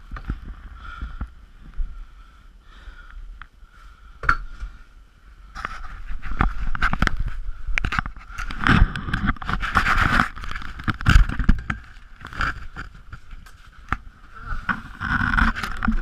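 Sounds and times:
wind thumps on microphone: 0:05.6 - 0:13.3
tent fabric flapping in wind: 0:05.6 - 0:16.0
gear clicking and scraping: 0:14.6 - 0:16.0.

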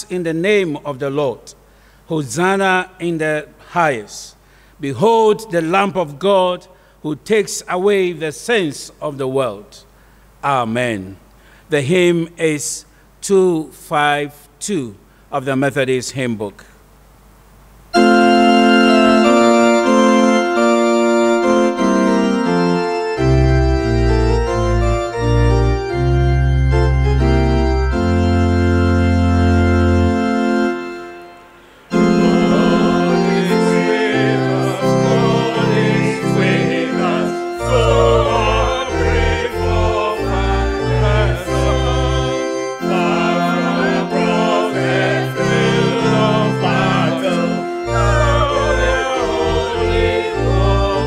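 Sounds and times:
organ playing chords: 0:17.9 - 0:51.0
voices singing a hymn: 0:18.0 - 0:23.2, 0:29.0 - 0:51.0.

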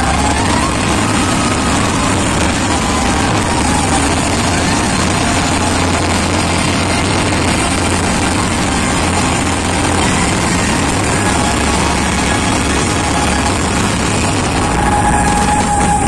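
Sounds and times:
fireworks bursting and crackling: 0:00.0 - 0:16.0.

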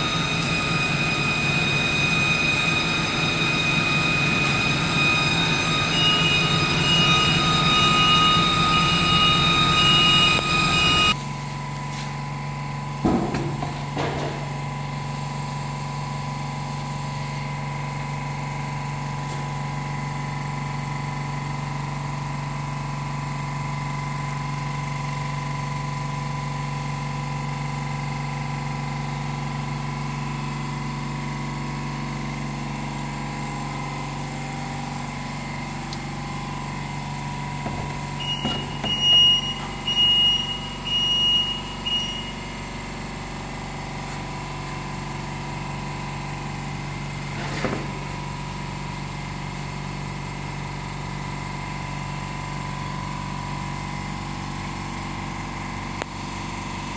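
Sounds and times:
milling machine humming: 0:00.0 - 0:11.8, 0:30.0 - 0:48.8
knock: 0:13.0 - 0:14.4
short high beeps: 0:38.2 - 0:42.5.

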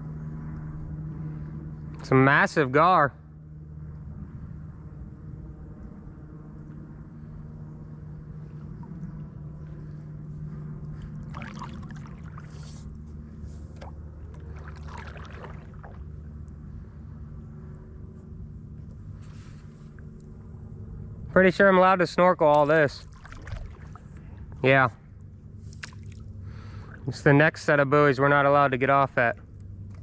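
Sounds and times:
steady low hum: 0:00.0 - 0:30.0
paddle splashing in water: 0:11.0 - 0:12.9, 0:13.6 - 0:16.2, 0:23.0 - 0:24.2.

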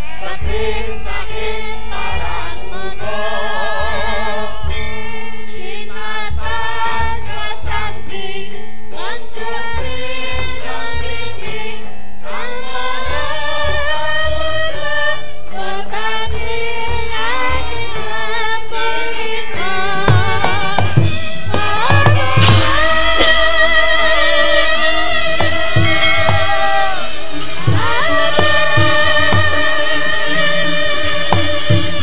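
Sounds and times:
women singing into microphones: 0:00.0 - 0:32.0
low drum beats: 0:20.0 - 0:32.0
gamelan accompaniment: 0:20.1 - 0:32.0.

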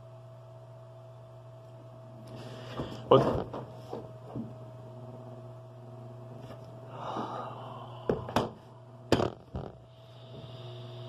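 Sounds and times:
low electrical hum: 0:00.0 - 0:11.0
breathy exhale: 0:06.8 - 0:08.4, 0:09.9 - 0:11.0.

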